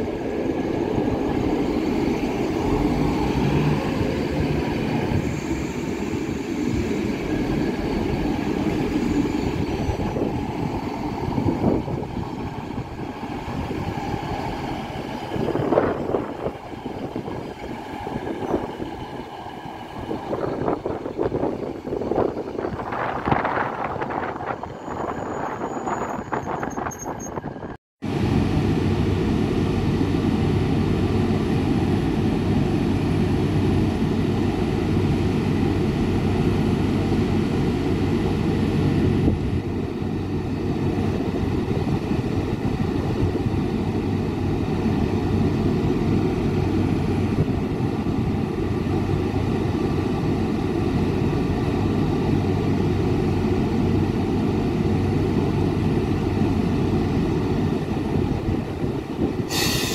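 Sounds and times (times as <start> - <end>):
locomotive cooling fans droning: 28.1 - 59.5.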